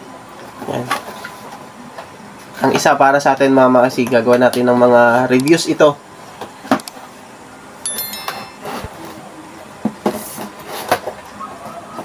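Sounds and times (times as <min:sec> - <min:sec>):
short high beeping: 0:07.9 - 0:09.0.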